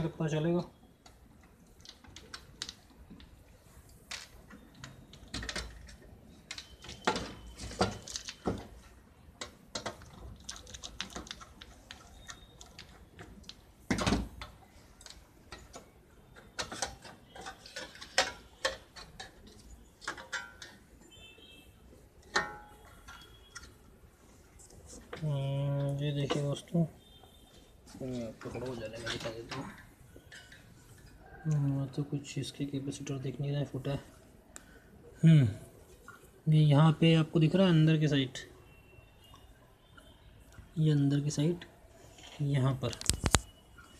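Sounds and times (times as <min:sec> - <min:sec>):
metal cover being handled: 0:16.6 - 0:20.8, 0:22.2 - 0:23.7.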